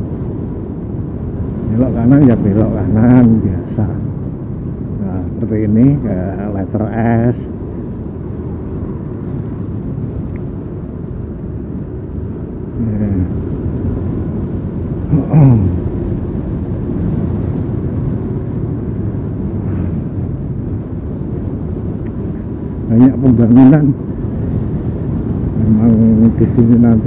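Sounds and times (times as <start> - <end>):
wind on microphone: 0.0 - 27.0
motorcycle running: 12.8 - 23.0.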